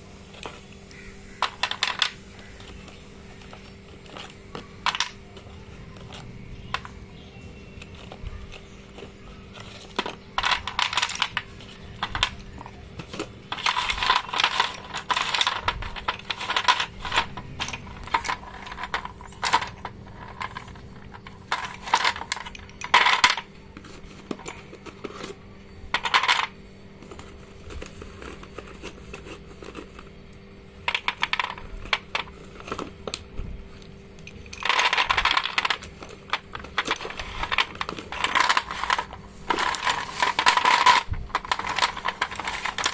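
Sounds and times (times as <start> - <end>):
chalk sticks clattering: 0.2 - 42.9.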